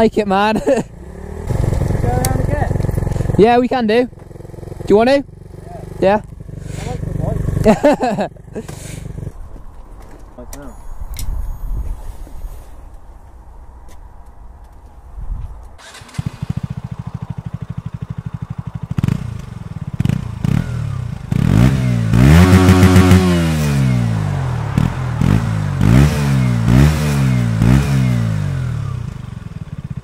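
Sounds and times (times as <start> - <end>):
motorcycle engine idling and revving: 0.0 - 11.6, 15.8 - 30.0.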